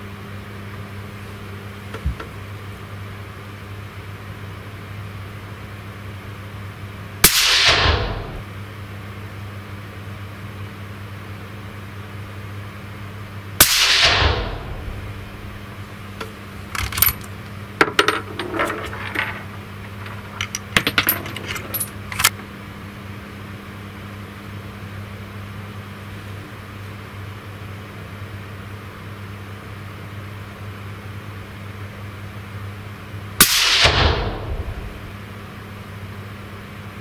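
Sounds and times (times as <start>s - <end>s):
suppressed rifle shot: 7.2s - 8.4s, 13.6s - 15.5s, 33.4s - 35.1s
low hum: 7.2s - 8.6s, 13.6s - 22.5s, 33.6s - 35.4s
rifle action clicks and clinks: 16.8s - 17.4s, 18.0s - 22.4s.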